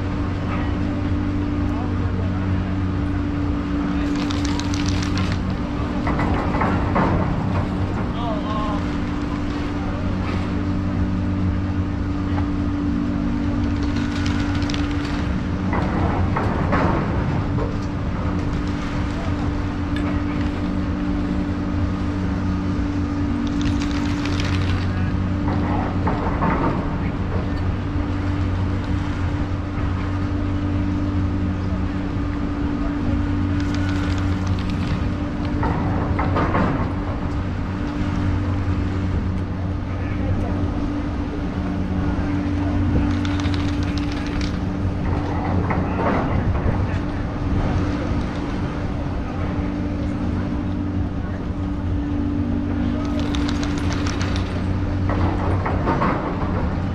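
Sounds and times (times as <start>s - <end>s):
chairlift machine hum: 0.0s - 56.9s
noisy rush: 0.0s - 56.9s
scattered mechanical clicks: 3.8s - 8.2s, 13.4s - 21.4s, 22.9s - 29.7s, 33.1s - 38.5s, 41.7s - 49.0s, 51.7s - 56.9s
chair rattling past terminal: 4.0s - 6.8s, 13.6s - 16.3s, 23.4s - 26.0s, 33.4s - 37.8s, 41.8s - 50.1s, 51.7s - 56.9s.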